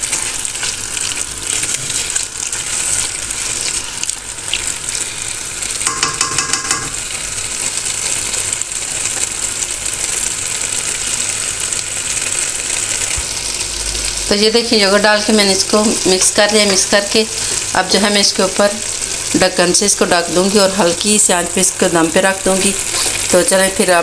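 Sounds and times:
curry sizzling in a pan: 0.0s - 24.0s
wooden spoon scraping a pan: 22.9s - 23.3s.

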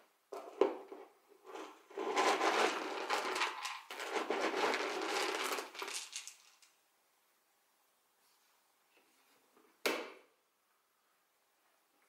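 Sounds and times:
kibble rattling in plastic bin: 1.5s - 6.6s.

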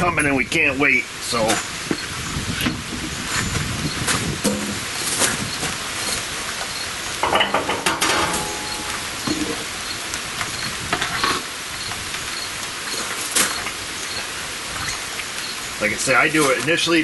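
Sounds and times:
rain hissing: 0.0s - 17.0s
steel lid clanking: 4.4s - 4.8s, 7.2s - 9.6s
metallic ring: 7.2s - 9.2s.

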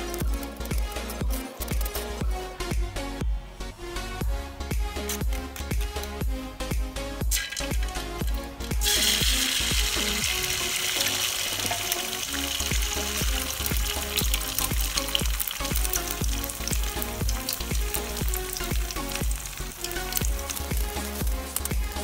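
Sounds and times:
background music with beat: 0.0s - 22.0s
egg sizzling in hot oil: 7.3s - 22.0s.

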